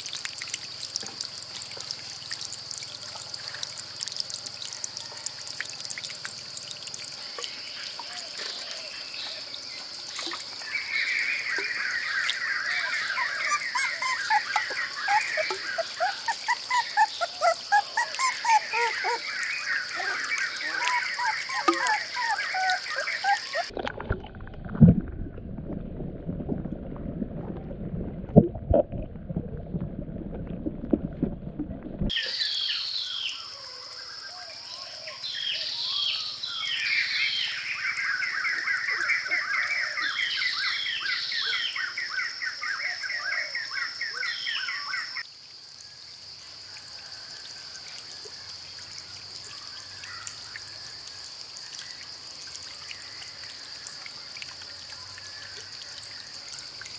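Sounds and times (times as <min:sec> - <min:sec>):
birds calling with trills: 0:07.5 - 0:23.7.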